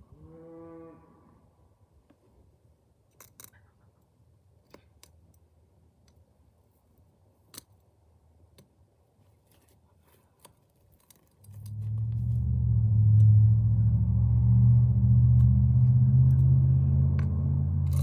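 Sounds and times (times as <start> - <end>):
clicks and snaps of weeding: 3.1 - 3.7, 7.4 - 7.8, 9.5 - 12.0.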